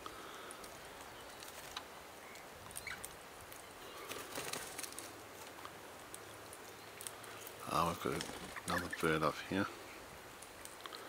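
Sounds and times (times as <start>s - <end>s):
birds cracking seed clicks: 0.0s - 9.3s, 10.2s - 11.0s.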